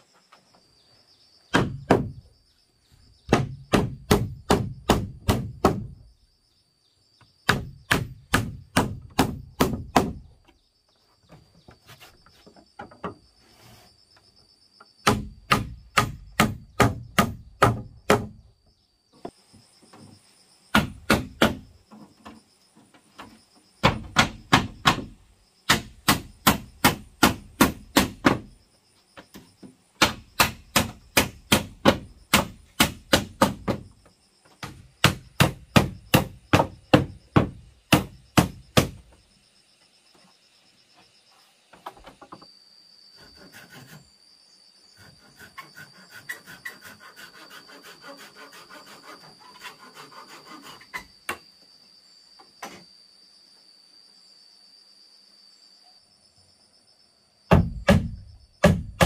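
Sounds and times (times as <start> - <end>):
hand saw rasping through wood: 45.0 - 51.0.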